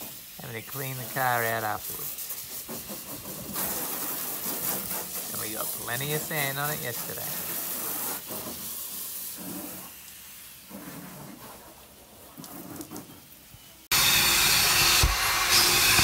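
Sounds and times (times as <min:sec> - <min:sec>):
garden hose spraying water: 0:00.0 - 0:14.0
vacuum hose sucking sand: 0:00.0 - 0:16.0
vacuum cleaner humming: 0:13.9 - 0:16.0.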